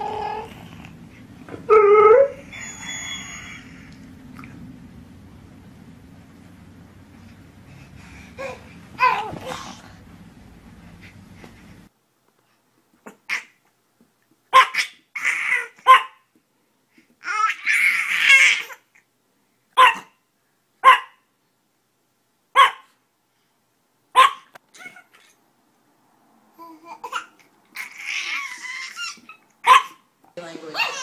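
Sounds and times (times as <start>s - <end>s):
small dog yapping: 14.5s - 16.3s, 19.8s - 20.2s, 20.8s - 21.2s, 22.6s - 22.9s, 24.2s - 25.3s, 27.0s - 30.0s, 30.7s - 31.0s.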